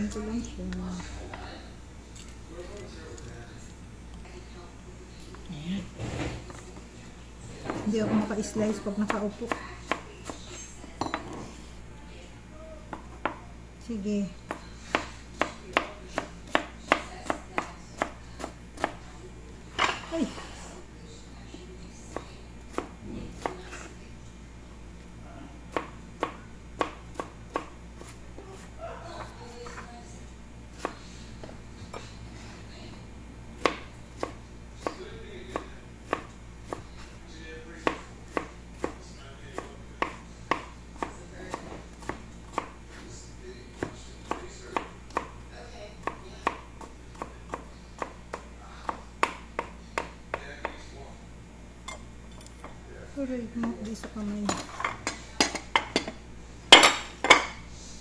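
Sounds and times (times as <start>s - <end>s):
knife chopping on cutting board: 14.5s - 19.0s, 25.7s - 28.7s, 33.6s - 36.9s, 37.8s - 39.0s, 39.6s - 42.8s, 43.7s - 45.4s, 46.0s - 50.8s.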